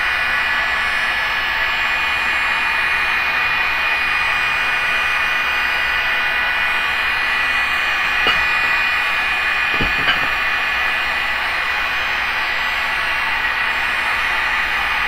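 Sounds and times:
light knocks: 0:09.7 - 0:10.4.

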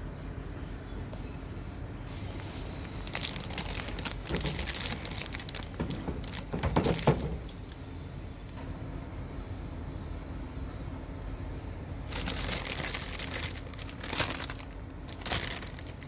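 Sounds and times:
plastic bag crinkling: 0:02.3 - 0:07.5, 0:12.1 - 0:16.0.

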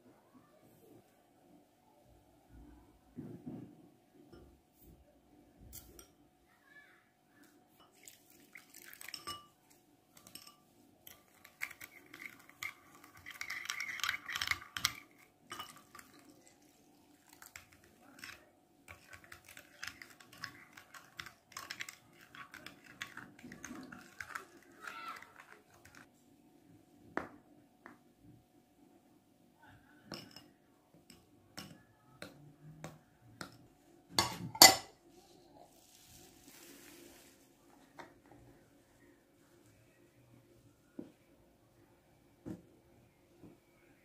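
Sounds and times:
water pouring: 0:07.8 - 0:09.4, 0:11.1 - 0:26.1
teaspoon clinking in glass bowl: 0:07.8 - 0:16.6.

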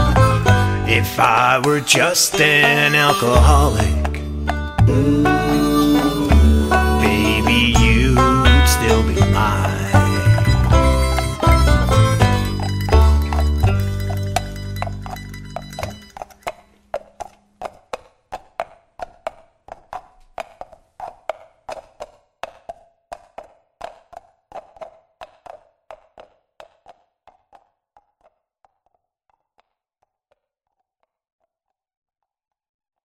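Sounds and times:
wood block tapping: 0:00.1 - 0:26.0
band's low note: 0:03.4 - 0:16.1.

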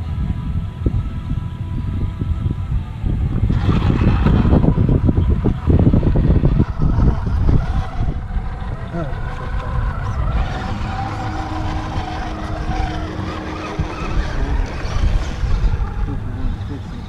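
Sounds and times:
faint motor whine: 0:00.0 - 0:17.0
low rumble: 0:00.0 - 0:17.0
rc crawler crawling over rock: 0:03.5 - 0:17.0.

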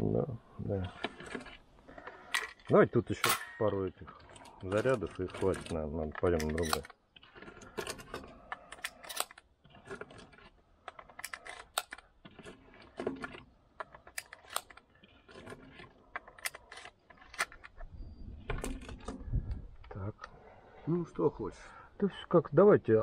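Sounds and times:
shotgun action metallic clicks: 0:01.3 - 0:09.5, 0:13.2 - 0:17.9.

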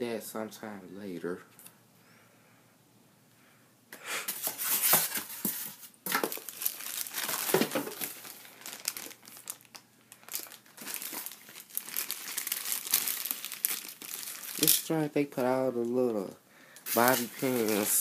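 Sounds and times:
plastic wrapping crinkling: 0:04.4 - 0:18.0.

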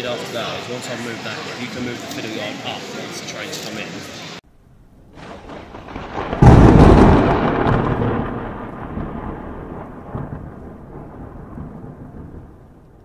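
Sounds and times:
thunderclap rumbling: 0:04.5 - 0:13.0.

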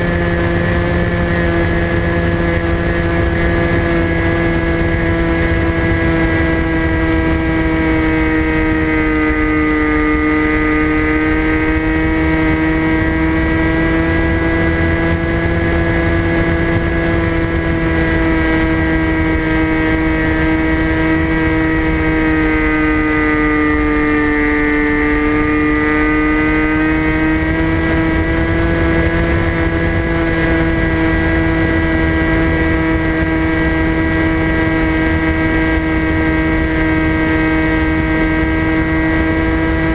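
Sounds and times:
electric motor whine: 0:00.0 - 0:39.9
wind rumble: 0:00.0 - 0:39.9.

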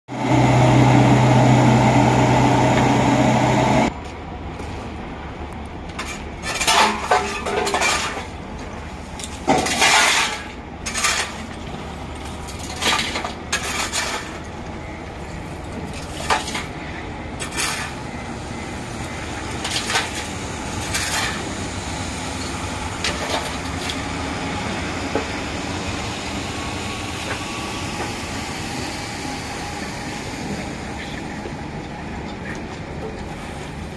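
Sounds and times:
diesel engine running: 0:00.1 - 0:06.0, 0:11.4 - 0:33.9
low machinery rumble: 0:00.1 - 0:09.5.

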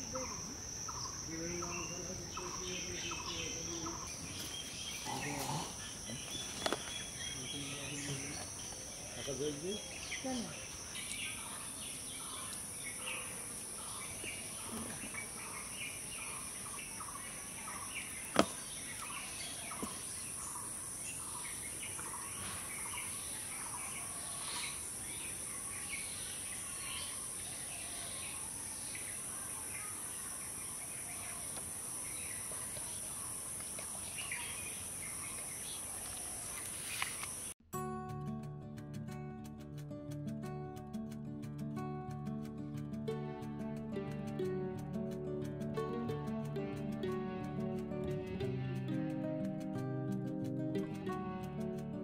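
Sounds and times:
high insect drone: 0:00.0 - 0:37.6.

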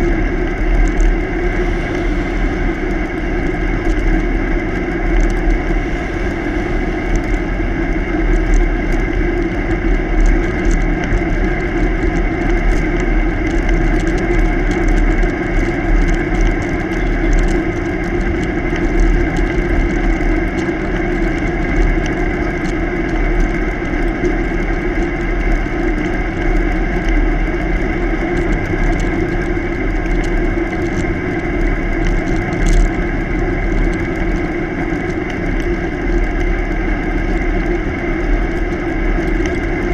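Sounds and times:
wind rush: 0:00.0 - 0:13.5, 0:26.1 - 0:39.9
bicycle road rumble: 0:00.0 - 0:39.9
constant low hum: 0:00.0 - 0:39.9.

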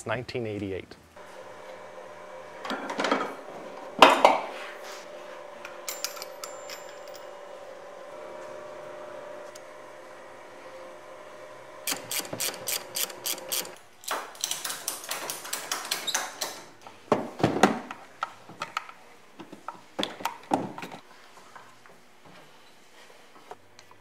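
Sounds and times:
metal tools clattering: 0:05.8 - 0:07.3
ratchet clicking: 0:11.9 - 0:13.8.

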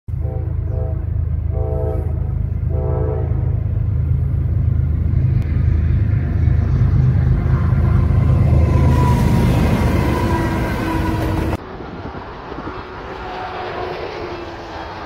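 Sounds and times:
locomotive horn blasts: 0:00.1 - 0:03.6, 0:07.8 - 0:11.6
diesel locomotive rumble: 0:00.1 - 0:15.0.

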